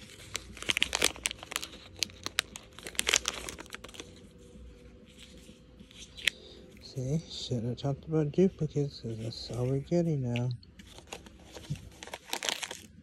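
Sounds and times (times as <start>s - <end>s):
plastic wrapper crinkling and tearing: 0.0s - 4.4s, 5.0s - 6.5s, 9.1s - 13.0s.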